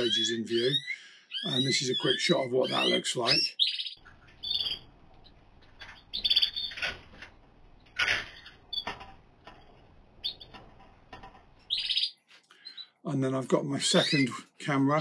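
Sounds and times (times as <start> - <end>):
canaries chirping: 0.0 - 15.0.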